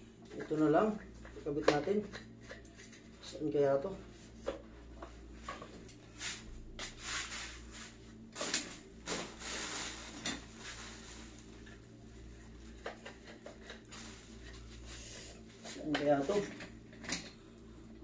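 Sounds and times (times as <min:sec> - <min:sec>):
plastic chair parts knocking and rustling: 0:08.4 - 0:10.7, 0:12.7 - 0:14.7.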